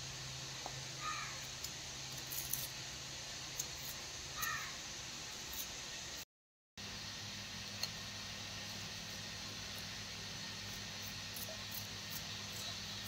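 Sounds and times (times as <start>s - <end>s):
steady hiss: 0.0s - 6.2s, 6.8s - 13.0s
crow cawing: 1.0s - 1.4s, 4.4s - 4.8s.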